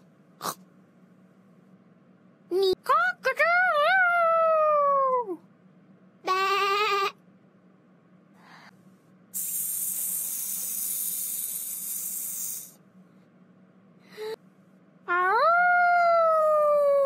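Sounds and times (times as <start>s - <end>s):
long hiss: 9.3s - 12.8s.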